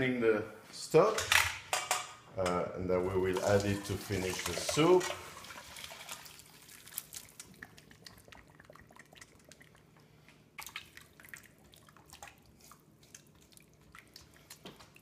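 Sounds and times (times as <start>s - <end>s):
liquid dripping into pot: 5.4s - 15.0s.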